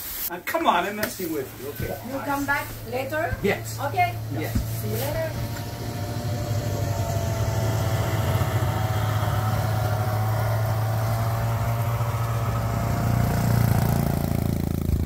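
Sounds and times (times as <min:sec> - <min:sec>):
snowmobile engine idling: 0:01.3 - 0:15.0.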